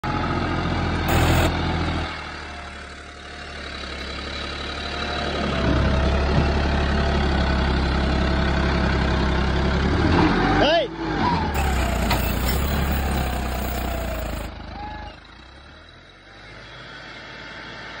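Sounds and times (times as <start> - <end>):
tractor diesel engine running: 0.0 - 10.1, 11.0 - 18.0.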